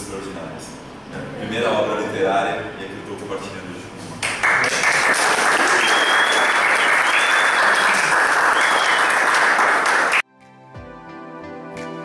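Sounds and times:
audience applauding: 4.2s - 10.2s.

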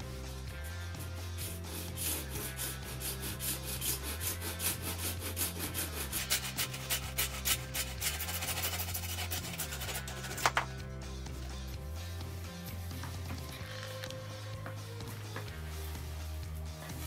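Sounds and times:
tool scraping plastic pipe: 1.4s - 10.7s.

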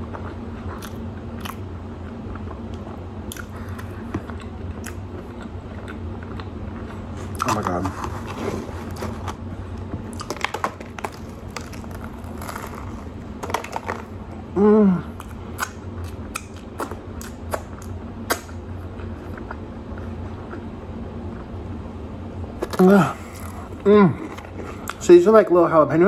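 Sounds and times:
chewing and lip-smacking: 0.0s - 7.6s, 15.2s - 20.7s, 24.3s - 25.0s
man humming mmm: 14.5s - 15.2s, 22.7s - 24.4s.

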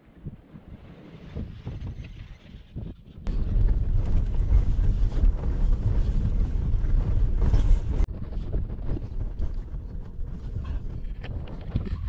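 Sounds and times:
vehicle rumbling on dirt trail: 3.3s - 12.0s.

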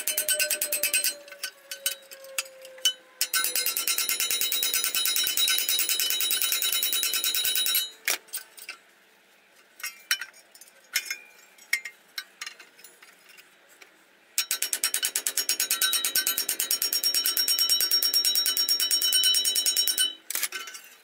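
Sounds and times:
hammer blows on ringing metal: 0.0s - 8.0s.

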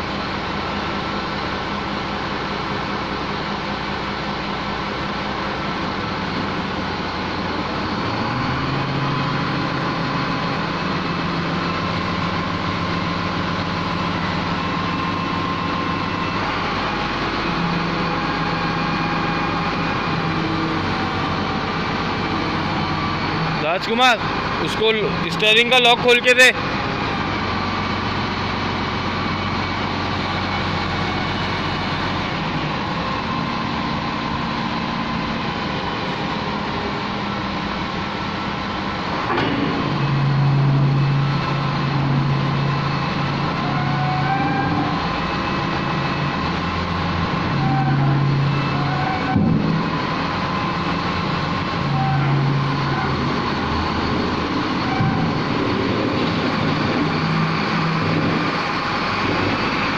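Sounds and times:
diesel engine revving: 0.0s - 59.9s.

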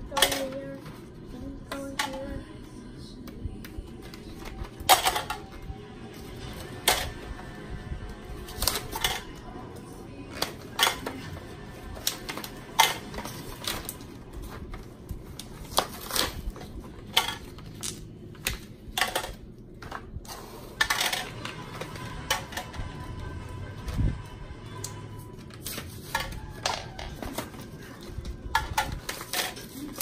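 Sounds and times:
plastic hair ties clattering into containers: 4.0s - 5.6s, 15.4s - 20.1s.

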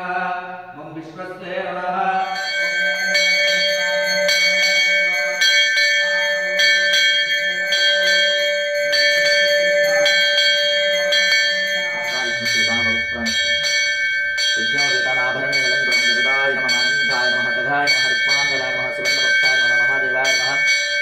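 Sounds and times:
large metal bell ringing: 2.1s - 21.0s.

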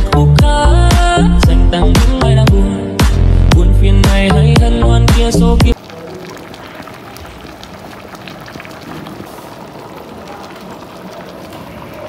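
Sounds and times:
stew bubbling in a pot: 5.8s - 12.0s.

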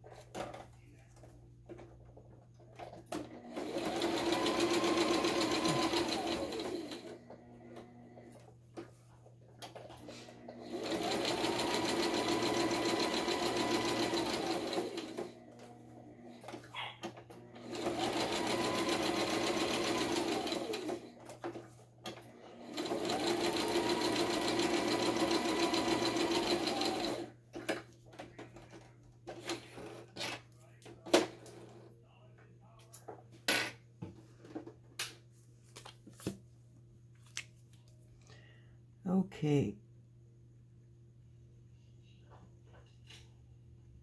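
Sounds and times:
electric sewing machine stitching: 2.8s - 8.5s, 9.6s - 27.4s.

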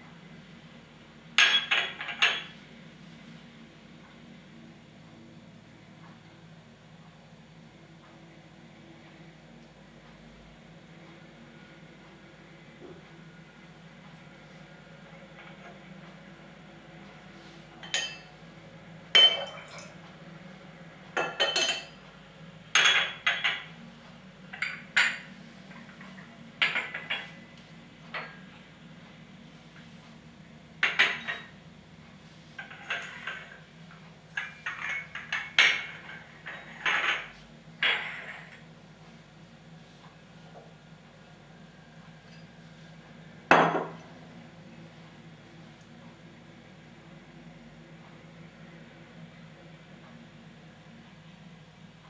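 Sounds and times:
porcelain cups clinking: 19.2s - 19.9s, 21.2s - 21.9s.

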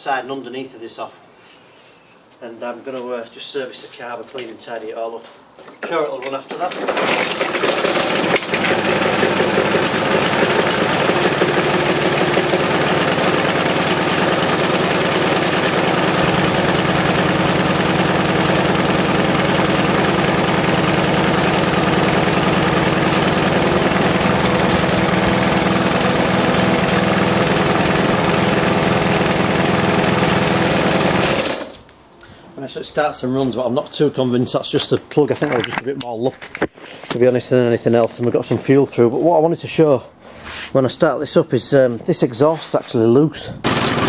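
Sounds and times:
lawnmower engine pull-start: 6.2s - 31.8s, 43.6s - 44.0s
lawnmower engine running: 6.7s - 31.8s, 43.6s - 44.0s.

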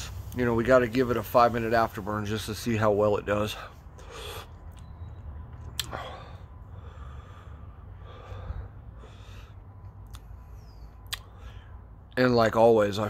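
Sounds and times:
mouth click: 5.5s - 6.0s, 11.0s - 11.3s.

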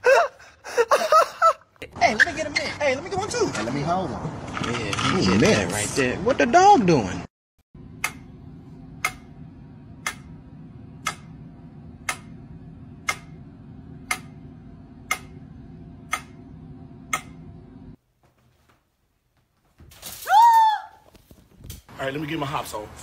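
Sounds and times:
low steady hum: 7.8s - 18.0s.

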